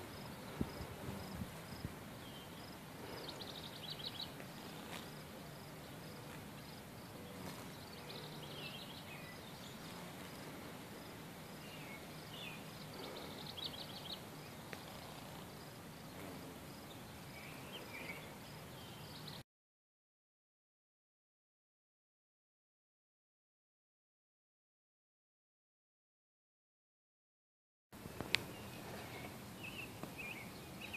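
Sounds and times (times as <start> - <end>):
small birds chirping: 0.0 - 19.4, 28.2 - 30.9
steady low hum: 0.0 - 19.4.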